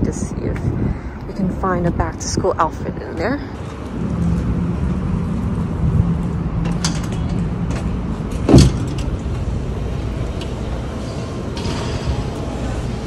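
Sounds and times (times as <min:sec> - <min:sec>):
road traffic rumble: 0:00.0 - 0:13.0
glass door thumping open: 0:08.4 - 0:09.1.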